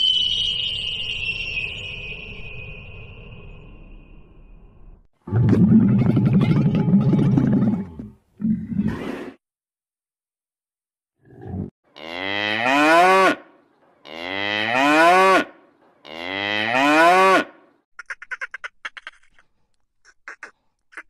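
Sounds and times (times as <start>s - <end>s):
cow mooing: 11.9s - 17.6s.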